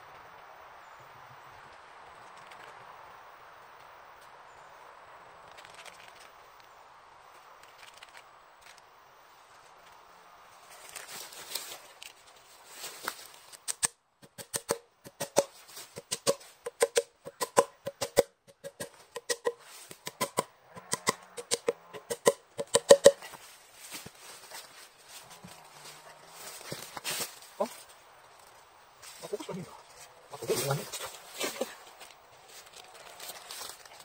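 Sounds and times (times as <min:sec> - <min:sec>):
rustling: 0:05.4 - 0:13.7, 0:15.4 - 0:16.9, 0:18.7 - 0:20.4, 0:22.0 - 0:34.0.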